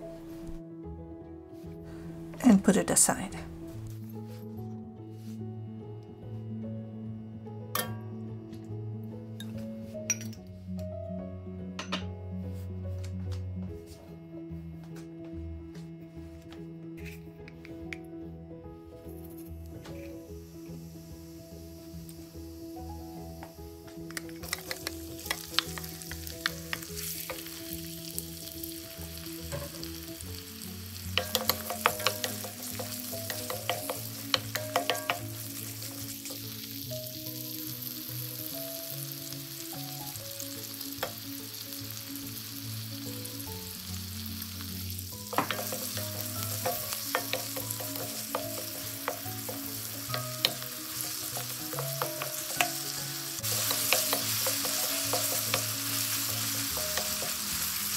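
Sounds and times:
onion sizzling in hot oil: 0:19.1 - 0:57.9
wooden spoon scraping a pan: 0:31.2 - 0:36.3, 0:45.3 - 0:56.0.

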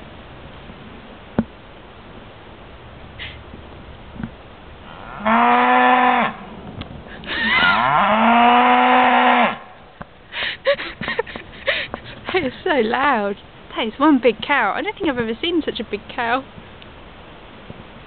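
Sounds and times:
cow mooing: 0:04.8 - 0:06.5, 0:07.6 - 0:09.7.

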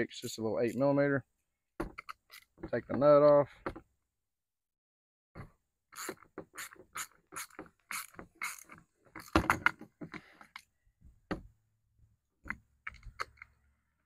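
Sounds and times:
hand ratchet clicking: 0:06.0 - 0:09.4.

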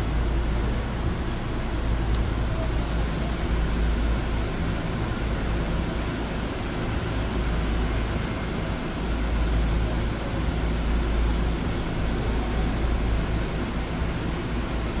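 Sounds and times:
faint hum: 0:00.0 - 0:15.0
low rumble and hiss: 0:00.0 - 0:15.0
faint click: 0:02.1 - 0:02.3.

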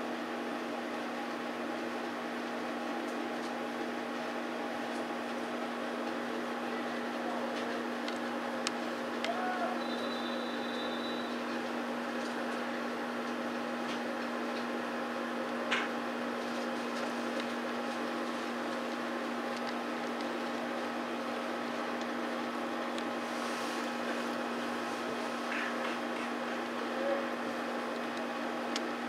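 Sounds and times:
electrical hum: 0:00.0 - 0:29.0
constant hiss: 0:16.4 - 0:29.0.

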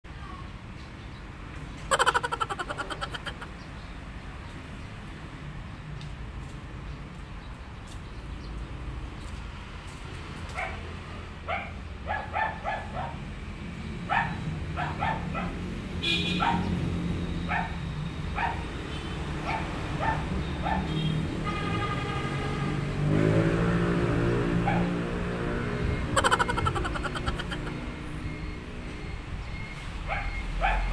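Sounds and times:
low traffic rumble: 0:00.1 - 0:30.9
dog yapping: 0:16.4 - 0:16.7, 0:26.2 - 0:27.7.

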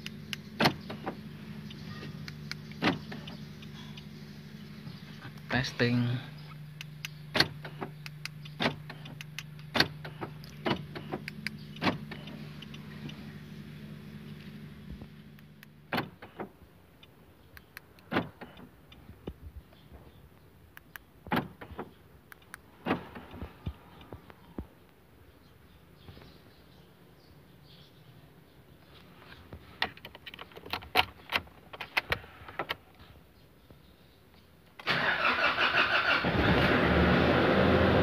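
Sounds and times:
sharp clicks: 0:00.0 - 0:04.1, 0:06.5 - 0:13.2, 0:15.3 - 0:19.4, 0:20.7 - 0:24.4
car door locks clunking: 0:00.6 - 0:01.2, 0:02.0 - 0:03.4, 0:07.3 - 0:13.2, 0:15.9 - 0:16.5, 0:17.9 - 0:18.7, 0:21.3 - 0:22.0, 0:22.8 - 0:23.4.

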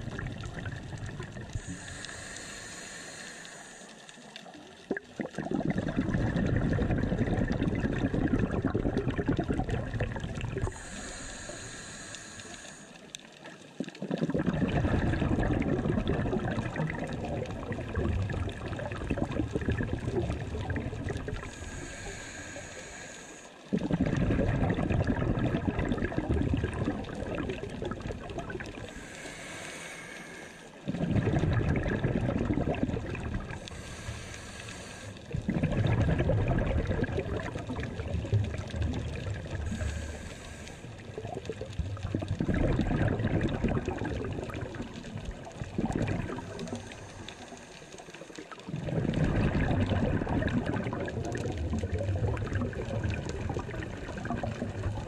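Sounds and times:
bubbles gurgling underwater: 0:00.0 - 0:02.1, 0:04.5 - 0:11.6, 0:13.4 - 0:22.4, 0:23.7 - 0:29.3, 0:30.8 - 0:55.0
regulator hiss: 0:01.6 - 0:04.0, 0:10.7 - 0:13.0, 0:21.5 - 0:23.5, 0:33.7 - 0:35.2.

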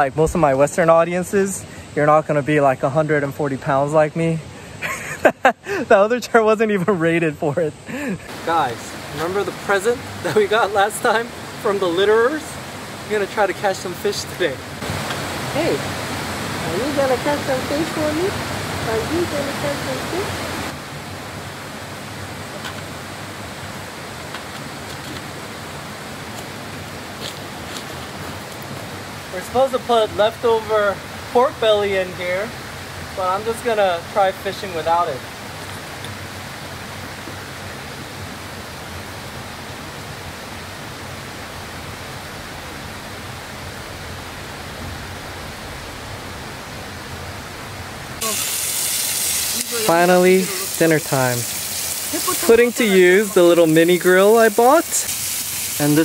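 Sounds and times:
stream water rushing: 0:07.7 - 0:56.0
loud hiss: 0:07.8 - 0:20.9, 0:48.2 - 0:56.0.

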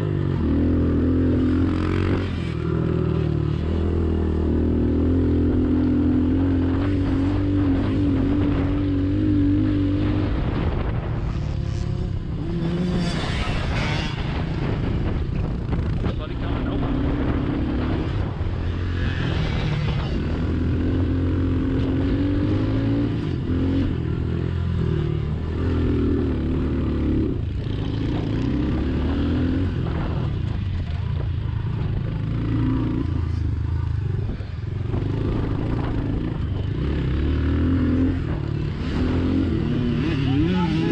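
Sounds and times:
small motorbike engine revving: 0:11.3 - 0:14.7, 0:35.2 - 0:40.9.

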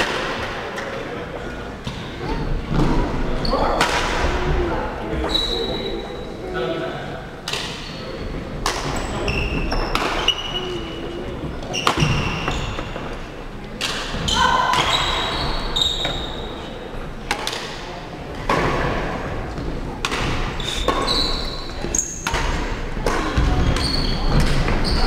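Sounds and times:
shoes squeaking on wooden floor: 0:07.8 - 0:13.2, 0:14.2 - 0:16.6, 0:20.6 - 0:22.2, 0:23.4 - 0:25.0.

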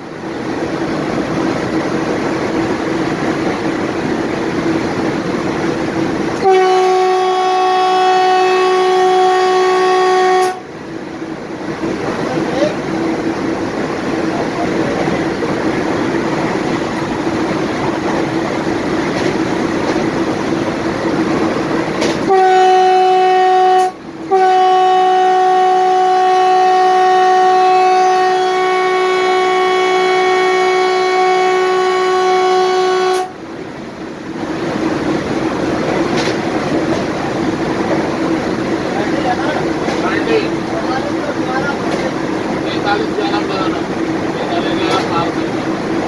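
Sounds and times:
train rolling slowly: 0:00.0 - 0:46.0
train horn blasts: 0:06.4 - 0:10.7, 0:22.0 - 0:33.4.

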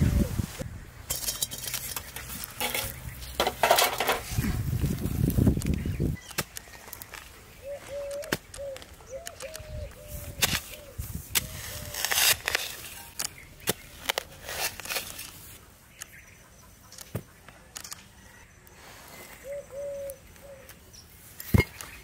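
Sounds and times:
blade chopping into dry soil: 0:01.6 - 0:07.3, 0:08.0 - 0:15.4
bird calling: 0:05.7 - 0:14.2, 0:19.1 - 0:22.0
brick knocking onto earth: 0:21.5 - 0:21.8.

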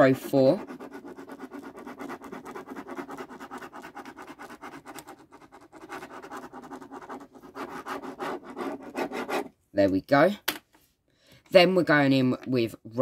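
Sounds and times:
pen scribbling on paper: 0:00.0 - 0:09.5.

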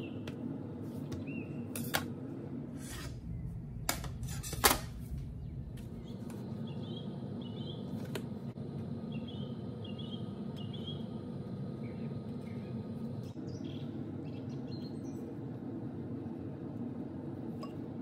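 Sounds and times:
steady low hum: 0:00.0 - 0:18.0
faint bird chirps: 0:09.1 - 0:11.1.

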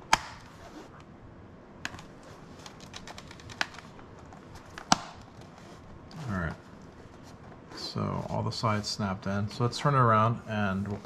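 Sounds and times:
plastic clips snapping: 0:00.1 - 0:00.5, 0:04.7 - 0:05.4.

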